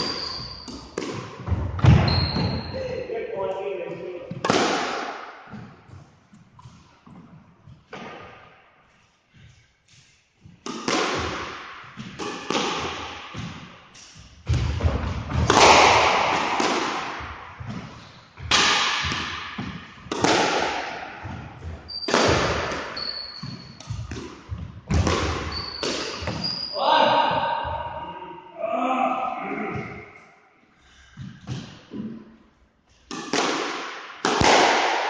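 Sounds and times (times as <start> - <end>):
squash ball hits echoing: 0.0 - 2.7, 4.3 - 6.0, 10.6 - 28.1, 33.1 - 35.0
shoes squeaking on wooden floor: 0.0 - 3.1, 21.6 - 26.8.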